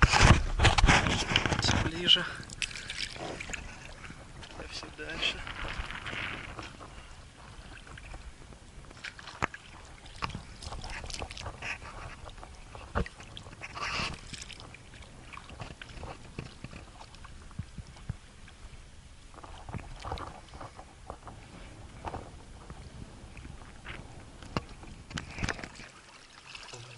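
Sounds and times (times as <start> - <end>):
choppy waves: 0.0 - 26.9
oars splashing and knocking: 0.0 - 26.9.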